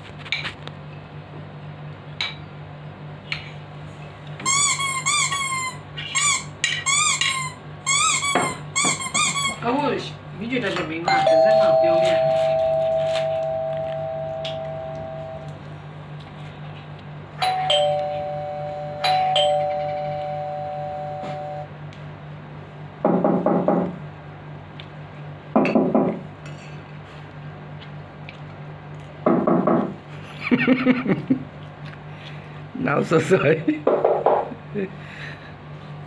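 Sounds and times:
two-tone doorbell chime: 11.1 - 15.5, 17.4 - 21.7.

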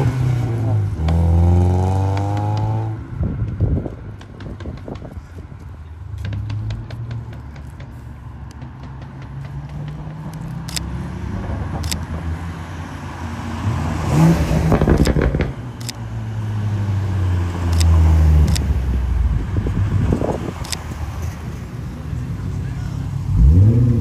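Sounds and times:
car exhaust revving: 23.3 - 24.0.

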